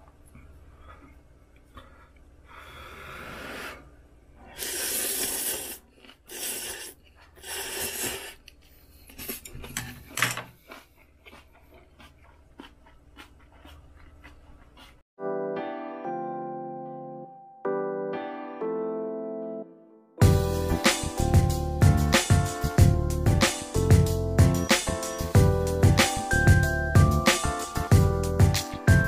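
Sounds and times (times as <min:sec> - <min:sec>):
person slurping noodles: 0:02.9 - 0:08.5.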